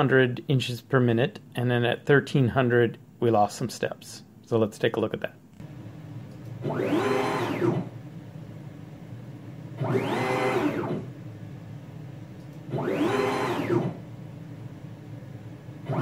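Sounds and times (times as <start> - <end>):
steady low hum: 0.0 - 16.0
stepper motor whine: 6.6 - 8.0, 9.8 - 11.1, 12.6 - 14.1, 15.8 - 16.0.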